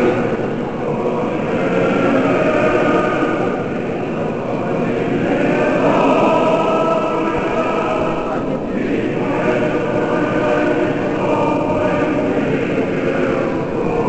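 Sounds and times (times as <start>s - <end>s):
choir chanting: 0.0s - 14.0s.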